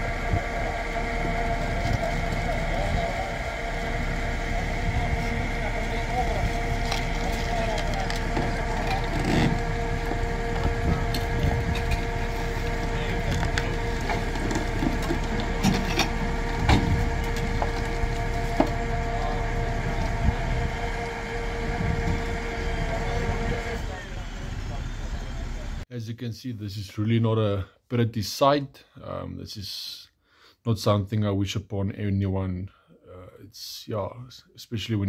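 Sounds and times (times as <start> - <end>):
fire crackling and popping: 0.0 - 21.2
steady held tone: 0.0 - 25.8.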